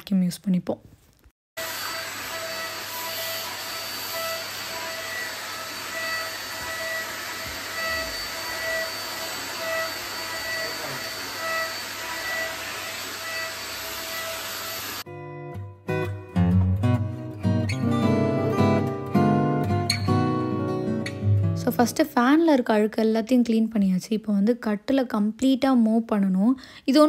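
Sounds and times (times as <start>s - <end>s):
vacuum cleaner running: 1.6s - 15.1s.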